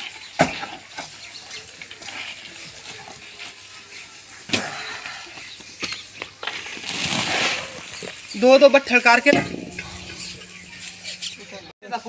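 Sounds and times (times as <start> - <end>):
spade scraping soil into metal pan: 6.8 - 8.1.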